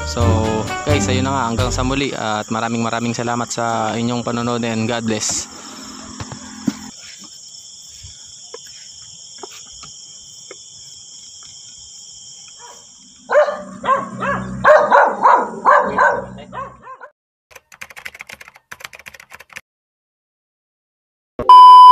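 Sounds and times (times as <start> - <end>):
crickets chirring: 0.4 - 16.8
dog barking loudly: 12.6 - 17.1.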